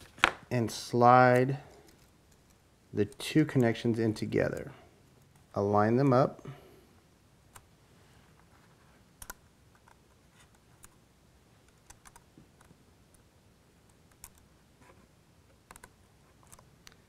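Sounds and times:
faint small clicks and ticks: 11.6s - 14.5s, 15.5s - 17.0s.

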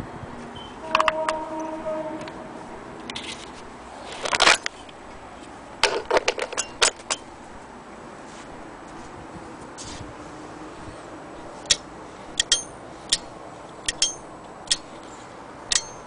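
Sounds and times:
clicks and clatters: 3.0s - 5.0s, 5.8s - 7.3s
sharp ringing clink: 12.4s - 13.3s, 13.9s - 14.9s, 15.7s - 16.0s.

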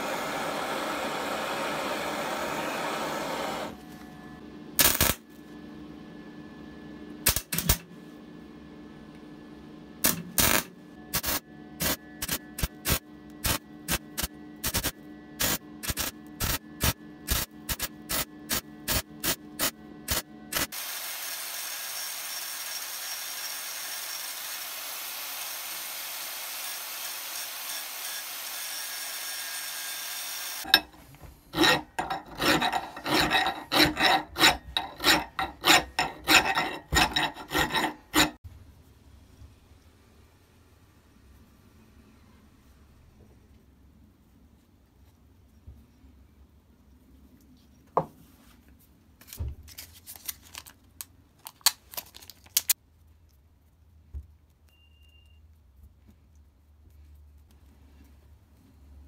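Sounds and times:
welder crackling: 4.8s - 5.2s, 10.0s - 20.8s, 30.6s - 38.4s
angle grinder hissing: 20.6s - 38.4s
hand file rasping on metal: 30.6s - 30.9s, 31.5s - 38.4s.

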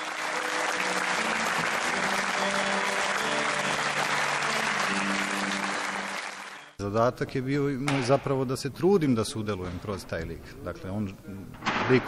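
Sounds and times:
audience applauding: 0.0s - 6.8s
music with long held notes: 0.0s - 6.8s.

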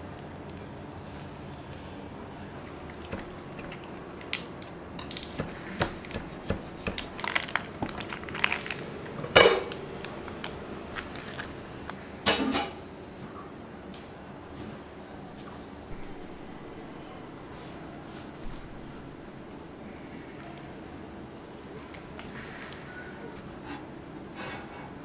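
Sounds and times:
parchment paper crinkling: 2.7s - 9.0s, 10.0s - 11.6s.

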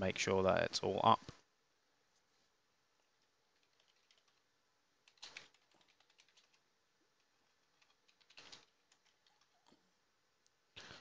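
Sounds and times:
keyboard typing: 3.5s - 6.6s, 7.2s - 9.8s.

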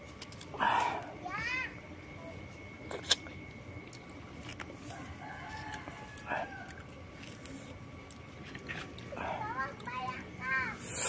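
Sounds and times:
rooster crowing: 4.8s - 7.0s.

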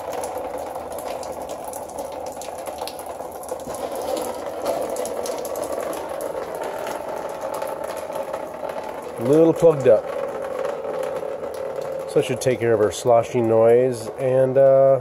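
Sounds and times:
water dripping into drain pan: 0.0s - 15.0s
steady hum: 3.1s - 15.0s.

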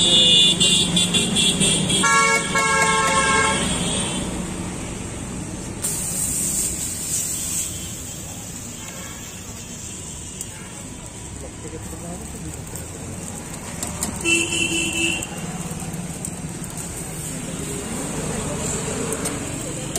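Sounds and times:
vehicle horn: 0.0s - 4.3s, 14.2s - 15.4s
street traffic rumble: 0.0s - 19.9s
brief hiss: 5.8s - 9.8s.

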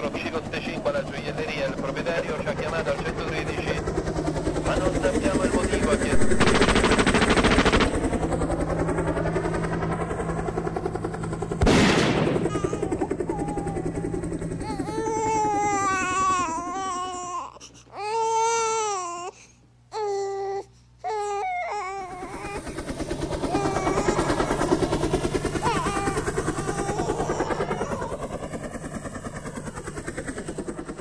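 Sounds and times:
rapidly pulsing wavering sound: 0.1s - 11.5s, 22.0s - 31.0s
high wailing voice: 12.4s - 17.3s, 23.4s - 24.8s, 25.6s - 28.2s.

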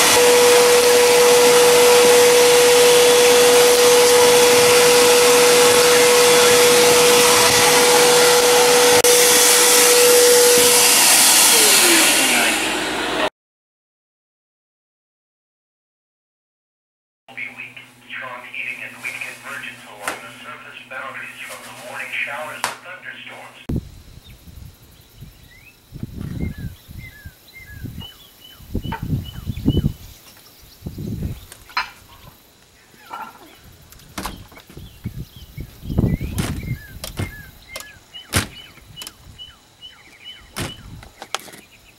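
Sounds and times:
wind buffeting microphone: 0.0s - 9.2s, 23.7s - 32.3s, 33.6s - 39.6s, 40.3s - 41.2s
vacuum cleaner running: 0.0s - 13.3s, 33.6s - 41.7s
small birds chirping: 24.0s - 41.9s
bird whistled notes: 25.4s - 30.0s, 34.3s - 41.0s
door click: 36.4s - 39.2s.

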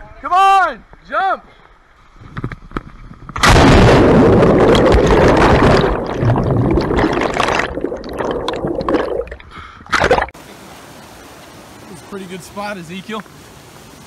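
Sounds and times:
loud splash: 3.4s - 10.4s
underwater bubbles churning: 3.4s - 10.4s.

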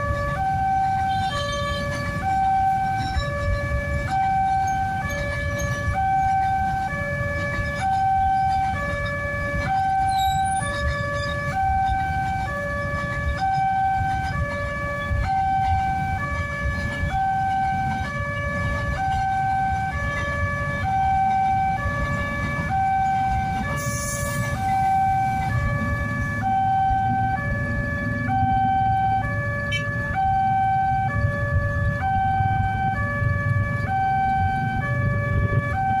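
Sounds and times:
train rumbling past: 0.0s - 26.5s
level crossing two-tone alarm: 0.0s - 36.0s.

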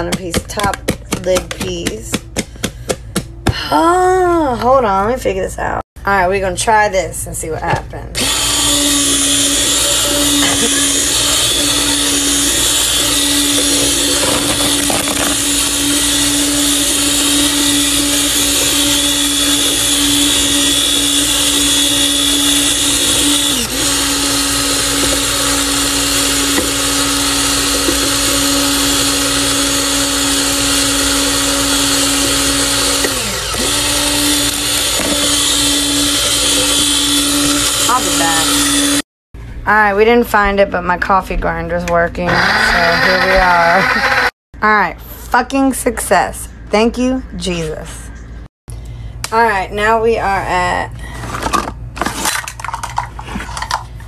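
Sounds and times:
coffee grinder motor humming: 8.2s - 39.0s, 42.3s - 44.3s.

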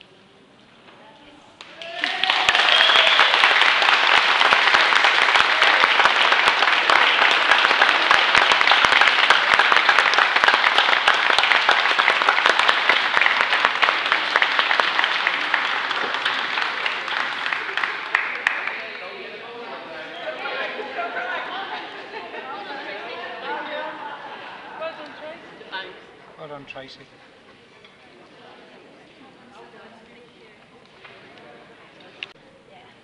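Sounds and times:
audience applause: 1.6s - 25.0s.

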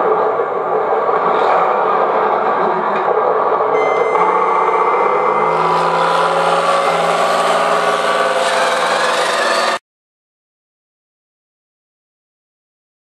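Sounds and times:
simulated tank engine running: 0.0s - 9.8s
thin high whine: 3.7s - 9.8s.

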